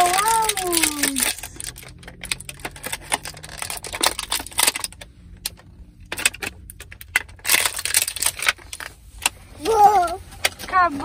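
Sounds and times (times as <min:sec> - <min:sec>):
plastic wrapper crinkling: 0:00.0 - 0:05.1, 0:06.6 - 0:09.3.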